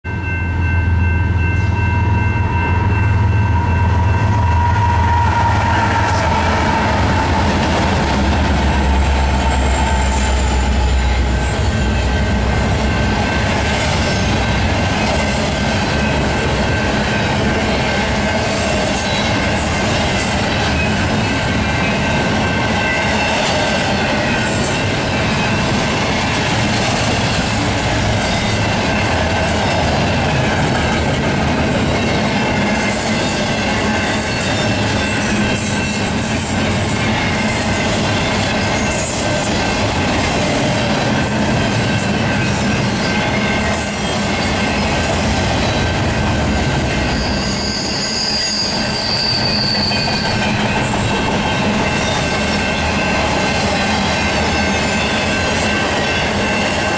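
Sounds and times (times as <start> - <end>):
freight train wheels clattering on rails: 0.5 - 56.9
high wheel squeal: 1.3 - 12.2, 41.4 - 56.9.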